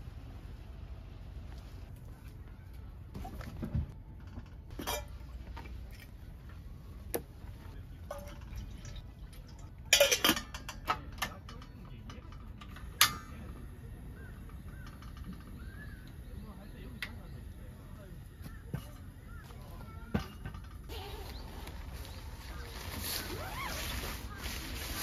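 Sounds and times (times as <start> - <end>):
cookware clinking and clattering: 4.2 - 5.7, 7.9 - 15.6.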